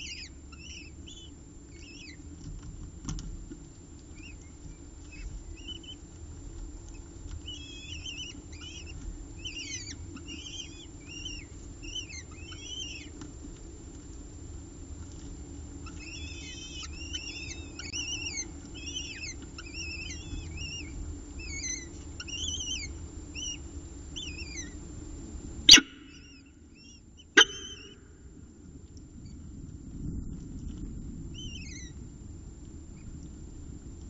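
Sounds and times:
falcon chicks begging chirps: 0:00.0 - 0:02.2, 0:04.2 - 0:06.2, 0:06.9 - 0:13.2, 0:15.8 - 0:24.8, 0:25.7 - 0:28.1
low steady hum: 0:00.0 - 0:34.0.

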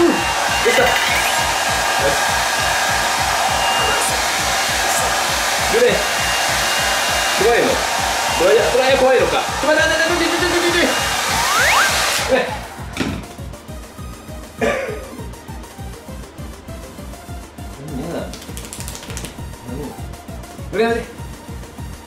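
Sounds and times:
hair dryer blowing: 0:00.0 - 0:13.0.

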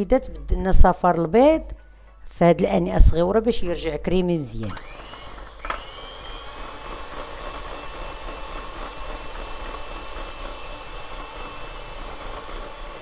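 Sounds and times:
electric hand mixer whirring: 0:04.6 - 0:13.0.

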